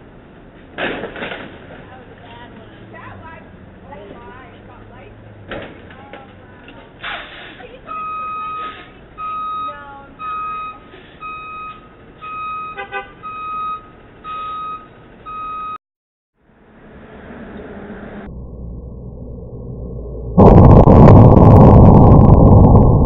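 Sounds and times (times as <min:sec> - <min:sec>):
traffic noise: 0:00.0 - 0:15.8, 0:16.4 - 0:18.4
clatter of knocks: 0:00.7 - 0:01.8
reversing alarm beeping: 0:07.9 - 0:15.8.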